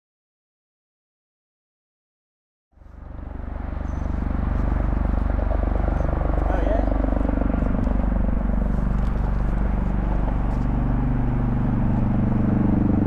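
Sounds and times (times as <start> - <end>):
low engine drone: 2.7 - 13.0.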